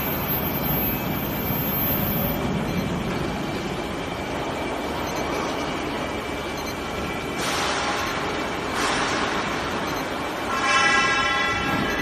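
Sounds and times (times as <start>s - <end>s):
faint high steady tone: 0.0s - 3.0s
rumbling machine noise: 0.0s - 12.0s.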